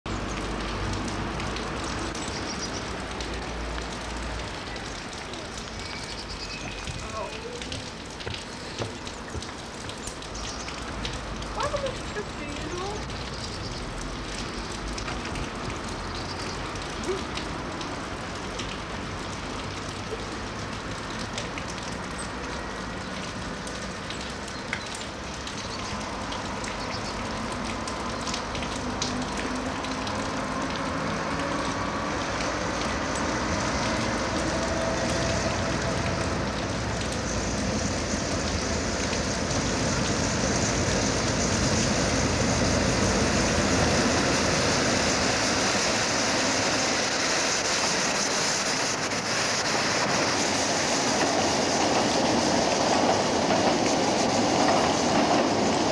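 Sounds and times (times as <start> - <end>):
diesel locomotive running: 32.9 - 55.9.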